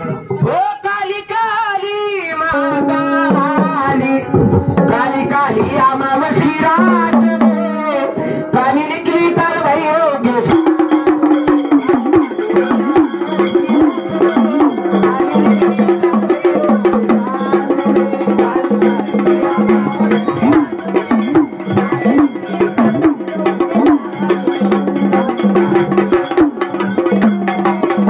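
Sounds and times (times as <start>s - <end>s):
fast hand drumming: 10.4s - 28.0s
person singing: 12.0s - 28.0s.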